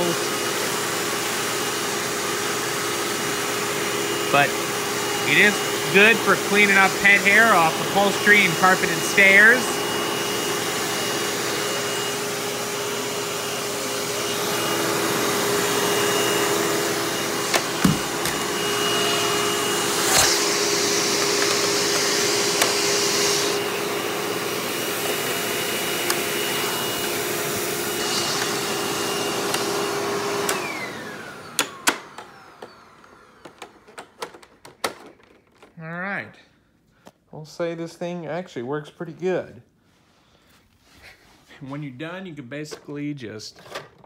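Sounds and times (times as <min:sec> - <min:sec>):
vacuum motor winding down: 0:00.0 - 0:34.0
vacuum cleaner whine: 0:00.0 - 0:35.4.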